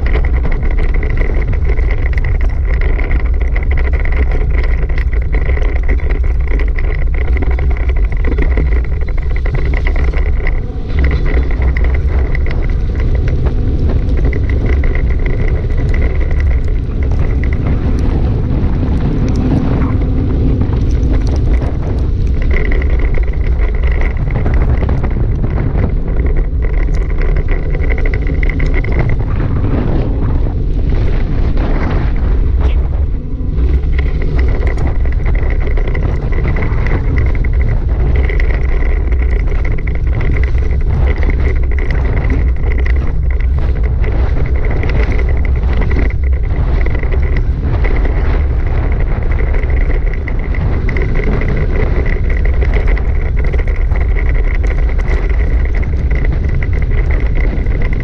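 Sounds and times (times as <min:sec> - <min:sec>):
small ticks: 0:00.0 - 0:58.0
tyres rumbling on gravel: 0:00.0 - 0:58.0
wind buffeting microphone: 0:00.0 - 0:58.0.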